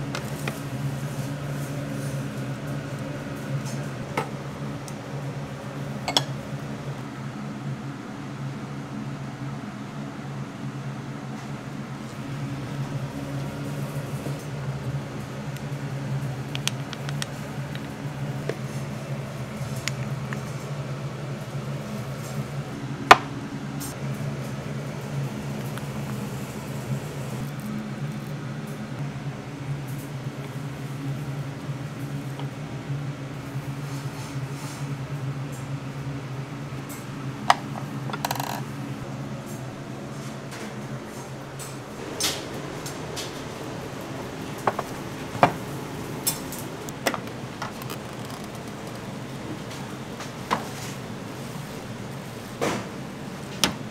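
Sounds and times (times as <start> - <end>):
low kitchen machine hum: 0.0 - 53.9
ceramic dishes clinking: 6.1 - 6.4.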